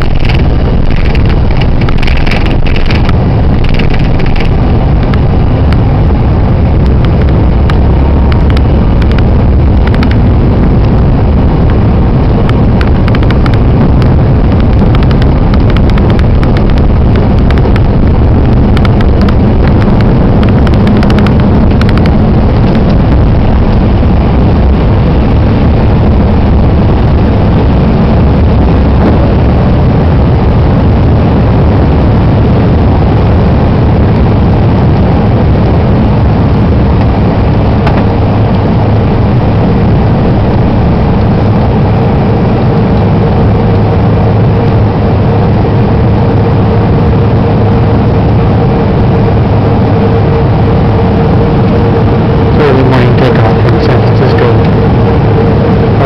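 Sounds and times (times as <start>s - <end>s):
light rattles: 0.0s - 5.8s
high engine whine: 0.0s - 56.0s
jet engines roaring: 0.0s - 56.0s.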